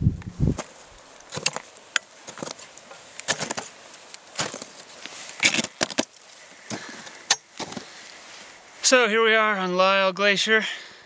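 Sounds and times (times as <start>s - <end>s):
footsteps crunching on snow: 0.4s - 8.8s.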